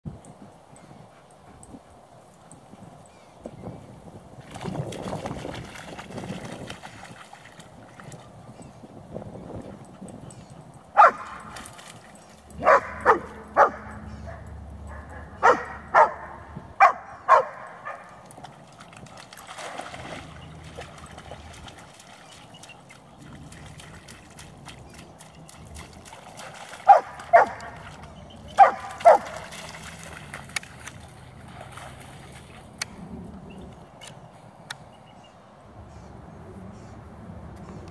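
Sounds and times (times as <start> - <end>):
dog barking: 11.0 - 11.5, 12.6 - 18.2, 26.9 - 27.8, 28.6 - 29.4.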